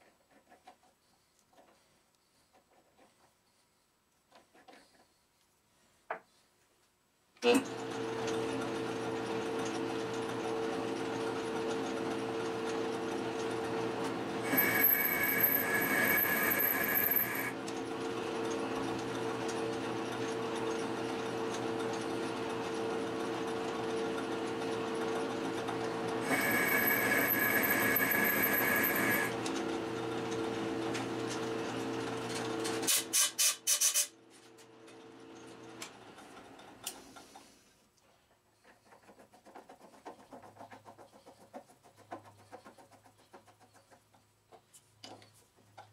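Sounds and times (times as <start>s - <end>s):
metal lathe motor hum: 7.7s - 32.6s
high-pitched lathe whine: 14.4s - 17.6s, 26.2s - 29.4s.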